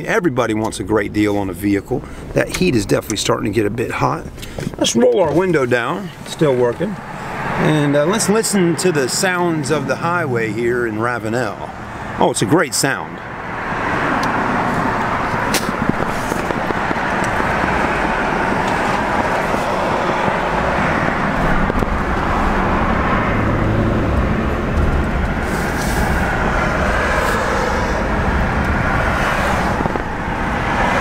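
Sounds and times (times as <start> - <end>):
road and wind noise: 0.0 - 31.0
deep rumble: 14.8 - 31.0.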